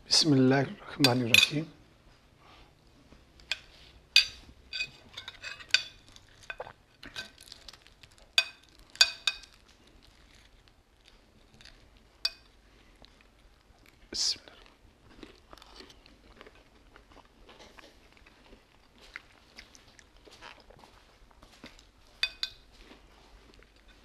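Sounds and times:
cutlery clinking on plates: 3.5 - 7.4, 22.2 - 22.6.

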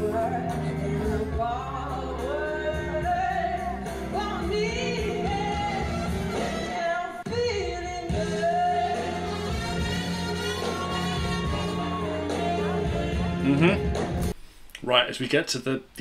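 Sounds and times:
woman singing soul ballad: 0.0 - 13.2
band accompaniment: 5.1 - 6.9, 8.1 - 14.3.

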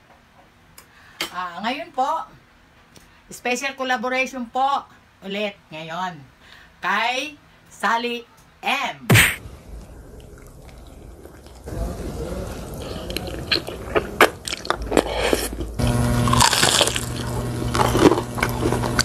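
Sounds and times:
low hum: 9.4 - 19.0
person chewing and crunching: 9.6 - 19.0.

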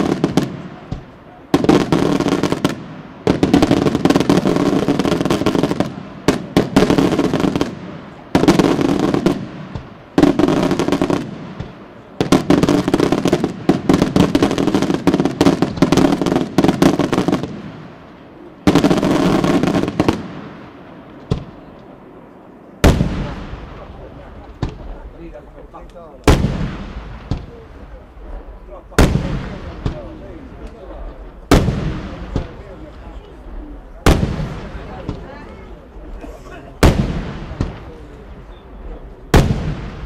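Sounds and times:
fireworks crackling bangs: 0.0 - 40.0
loud firework bang: 26.2 - 27.9, 31.5 - 32.8, 39.3 - 40.0.

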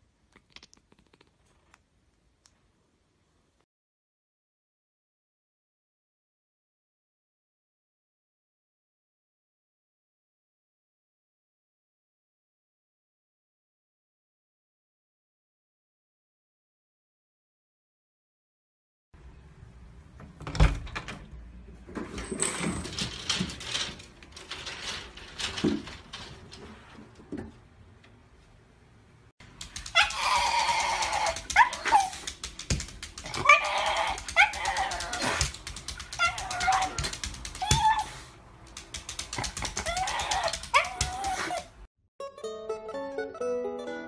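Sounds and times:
clattering and rattling: 21.9 - 27.6
dog whining: 29.8 - 32.3, 33.2 - 38.3, 39.4 - 41.9.

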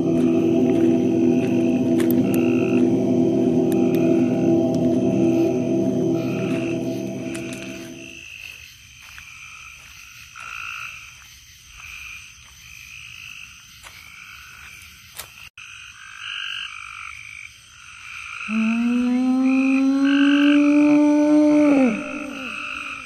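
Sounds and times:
loud steady low tone: 0.0 - 8.2
frogs calling: 0.0 - 23.0.

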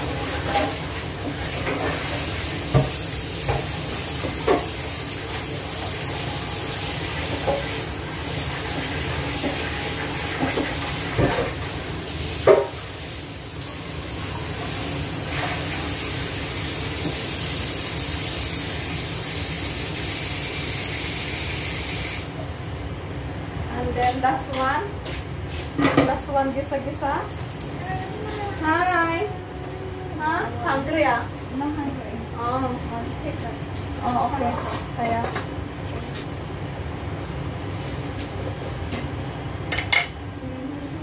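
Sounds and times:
food sizzling in a covered pan: 0.0 - 22.3.

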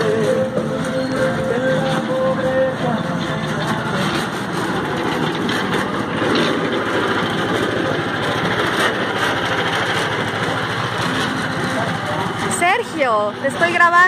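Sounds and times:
small engine running: 0.0 - 14.0.

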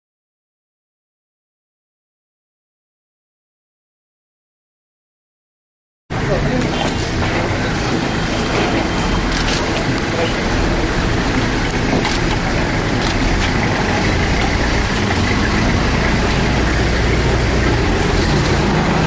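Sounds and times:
street noise rumble: 6.1 - 19.0
van engine driving past: 6.2 - 19.0.

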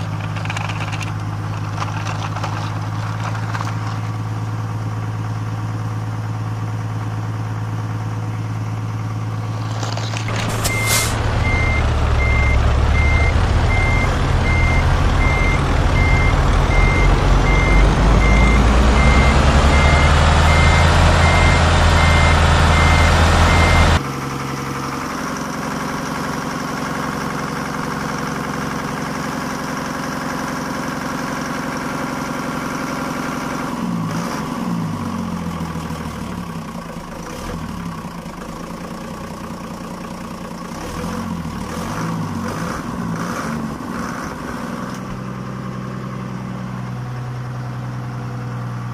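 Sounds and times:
simulated truck engine: 0.0 - 48.9
toy clicks: 0.2 - 2.7
reversing beeps: 10.4 - 24.0.

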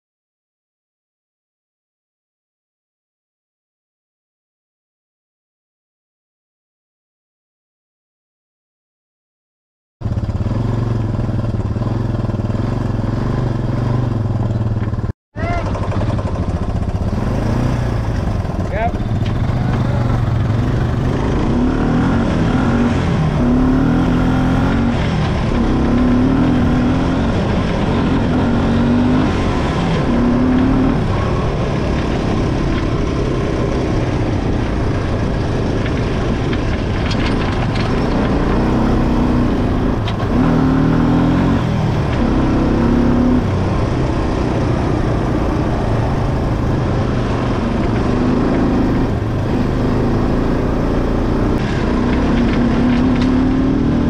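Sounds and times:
atv engine revving: 10.0 - 54.0.

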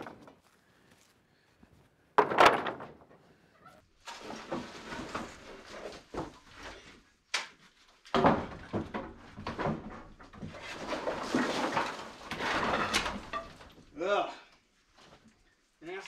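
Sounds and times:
wooden boards clattering: 0.0 - 0.4, 2.2 - 3.2, 4.1 - 7.5, 8.1 - 14.0
scraping and rustling: 2.2 - 7.0.

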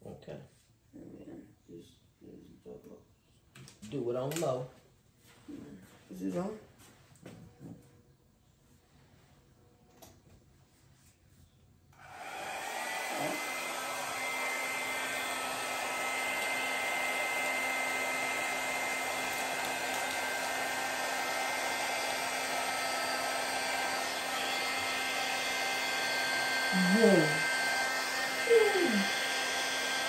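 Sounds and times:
hair dryer blowing: 12.0 - 30.0.

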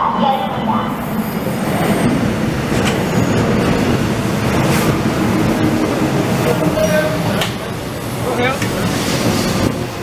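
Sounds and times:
train wheels rumbling on track: 0.0 - 10.0
rail joint clicks: 2.7 - 3.6, 4.5 - 7.8, 8.5 - 9.8.

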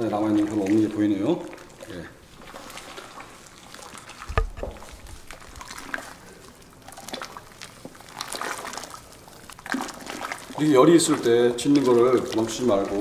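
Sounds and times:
liquid sloshing: 0.0 - 13.0
wooden stick scraping in liquid: 2.3 - 13.0
stick thumping container bottom: 4.3 - 4.9.

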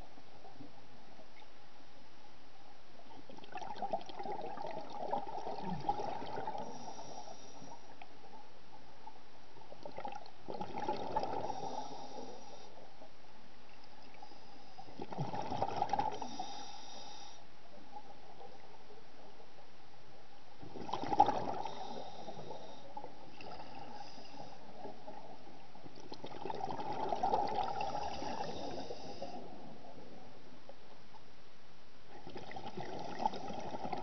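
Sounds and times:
faint hum: 0.0 - 34.0
gurgling bubbles underwater: 3.3 - 7.2, 9.8 - 12.2, 14.9 - 16.6, 20.6 - 25.4, 26.0 - 30.1, 32.1 - 34.0.

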